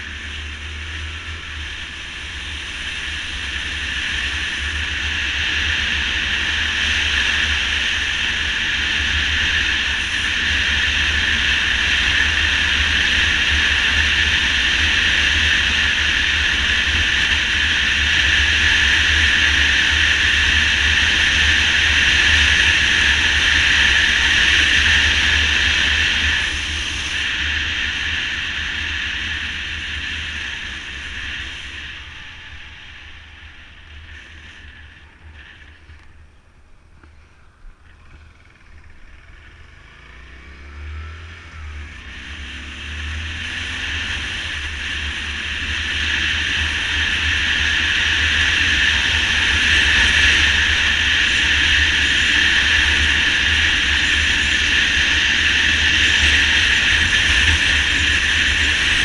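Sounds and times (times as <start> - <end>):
motorcycle engine: 0.0 - 59.0.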